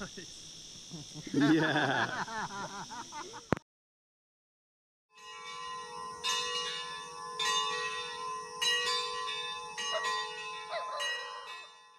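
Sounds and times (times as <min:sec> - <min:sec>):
church bell ringing: 0:05.2 - 0:11.9.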